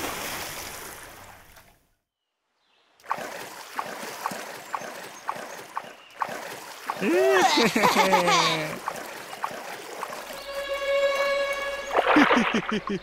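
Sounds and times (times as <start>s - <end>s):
rush of water: 0.0s - 1.6s, 3.0s - 13.0s
flowing water: 3.0s - 13.0s
oars splashing: 3.0s - 13.0s.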